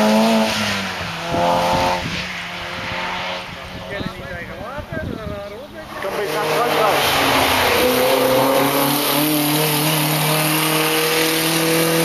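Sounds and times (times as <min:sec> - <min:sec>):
rally car engine at high revs: 0:00.0 - 0:04.2, 0:05.8 - 0:12.0.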